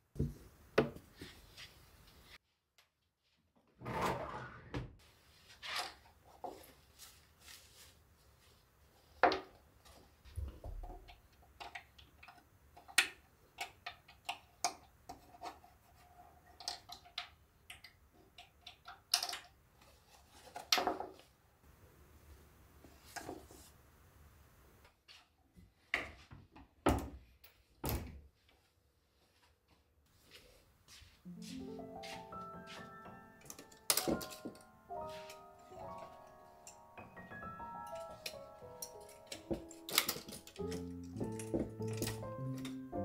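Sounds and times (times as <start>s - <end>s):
clicks and taps of household items: 10.4s - 15.6s, 16.5s - 19.6s, 33.4s - 34.7s, 37.8s - 43.0s.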